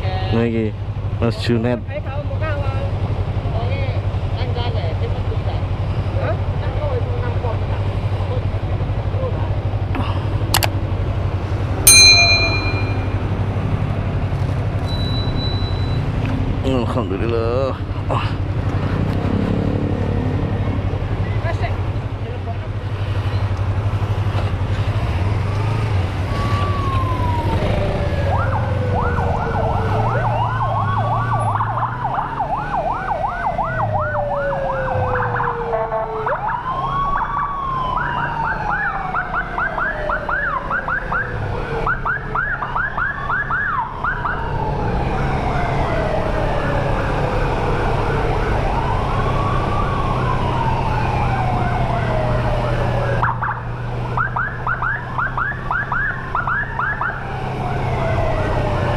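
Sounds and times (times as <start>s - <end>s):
motorcycle engine droning: 11.8s - 14.2s
siren wailing: 26.2s - 58.9s
siren yelping: 26.2s - 58.9s.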